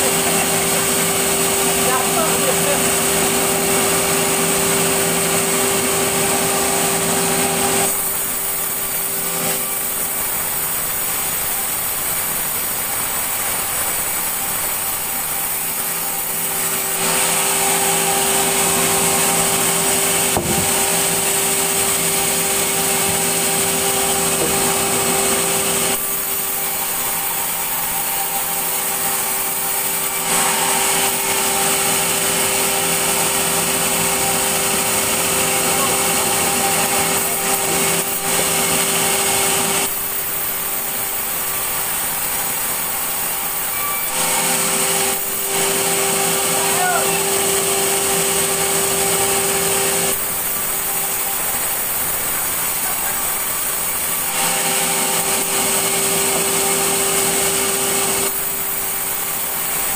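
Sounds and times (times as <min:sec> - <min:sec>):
band saw cutting log: 0:00.0 - 0:59.9
sharp knock: 0:20.3 - 0:20.7.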